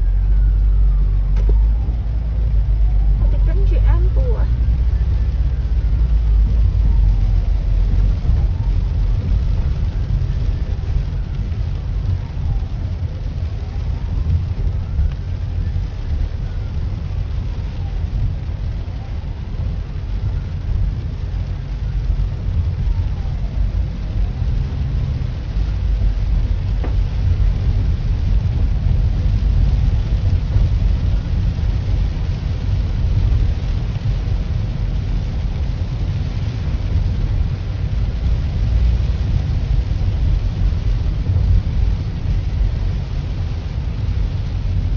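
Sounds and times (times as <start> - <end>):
ambulance siren wailing: 0.0 - 25.7
low rumble of a car: 0.0 - 44.9
rain: 0.0 - 44.9.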